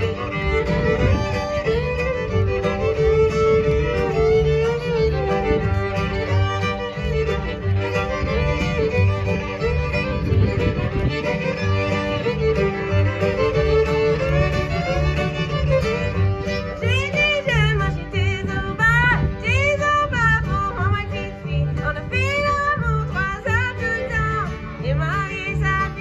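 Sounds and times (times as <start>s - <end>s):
acoustic guitar: 0.0s - 26.0s
fiddles playing melody: 0.0s - 26.0s
upright bass: 0.0s - 26.0s
woman singing: 16.8s - 26.0s.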